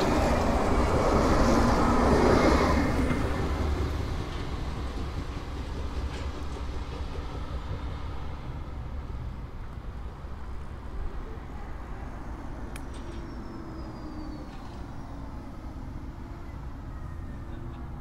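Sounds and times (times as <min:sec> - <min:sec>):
electric tram rumbling past: 0:00.0 - 0:18.0.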